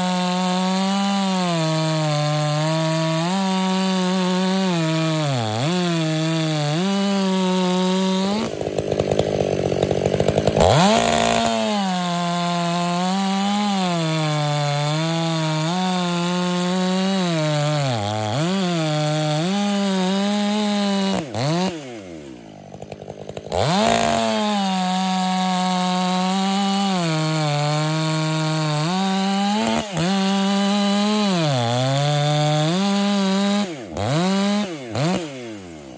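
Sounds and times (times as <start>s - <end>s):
chainsaw cutting logs: 0.0s - 35.9s.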